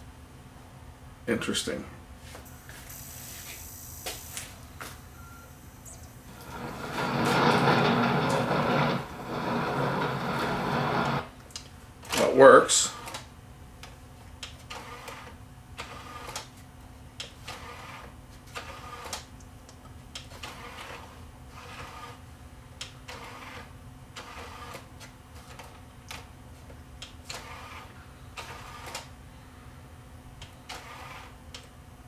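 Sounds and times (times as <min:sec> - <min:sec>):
steady low hum: 0:00.0 - 0:14.4
disc tray whirring and clicking: 0:05.8 - 0:11.3, 0:22.8 - 0:26.3, 0:27.0 - 0:29.1, 0:30.4 - 0:31.8.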